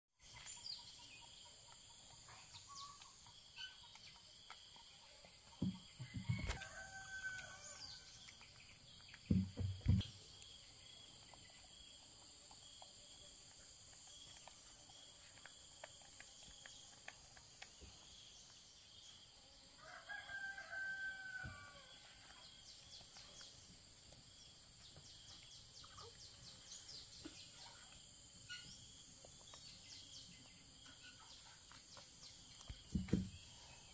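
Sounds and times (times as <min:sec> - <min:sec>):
rooster crowing: 0:06.2 - 0:08.1, 0:19.8 - 0:22.0
dull thumps: 0:09.3 - 0:10.1, 0:32.8 - 0:33.4.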